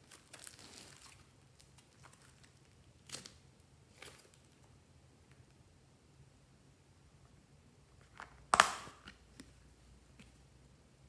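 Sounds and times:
slime crackling and squelching: 0.0s - 4.7s.

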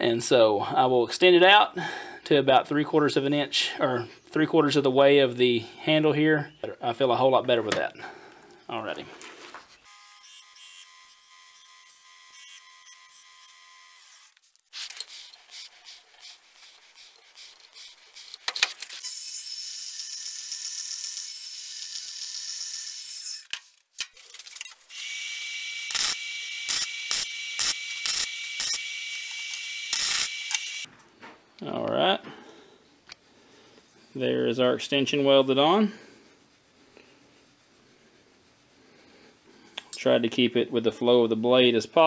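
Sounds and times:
bandsaw cutting steel: 9.8s - 18.4s, 19.0s - 23.5s
belt grinder grinding steel: 9.8s - 23.5s, 24.8s - 30.9s
electric welder arc: 24.9s - 30.9s.

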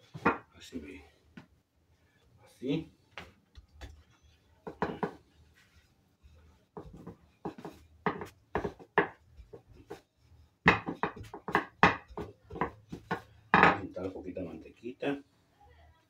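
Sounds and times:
rolling pin rolling on dough: 3.5s - 14.6s.

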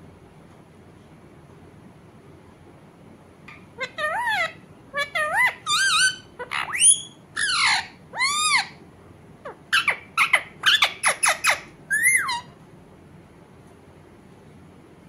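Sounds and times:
parakeet squawking and chirping: 3.5s - 8.8s, 9.4s - 12.5s.

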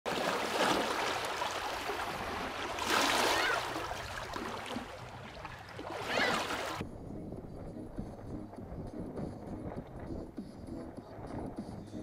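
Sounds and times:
water waves splashing: 0.1s - 6.8s.

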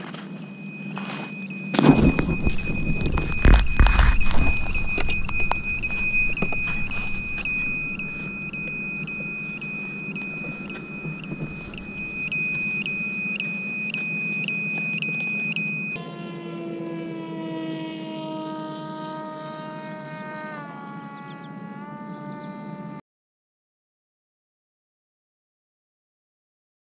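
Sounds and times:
high electronic beeper tone: 0.0s - 21.5s
electric motor and propeller buzzing: 0.0s - 23.0s.

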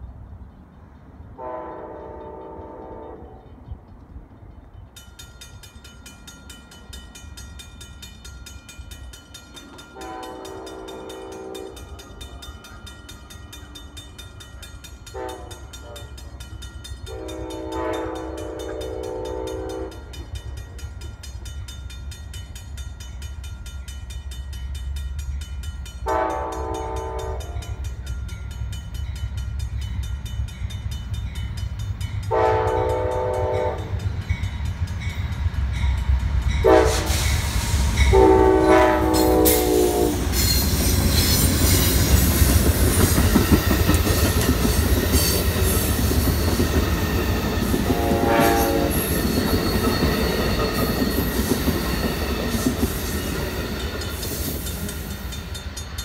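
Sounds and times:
train rumble and wheel noise: 0.0s - 56.0s
train air horn blasts: 1.4s - 3.6s, 9.9s - 12.4s, 15.1s - 16.4s, 17.1s - 20.2s, 26.0s - 27.9s, 32.3s - 34.0s, 36.6s - 41.4s, 47.8s - 49.2s.

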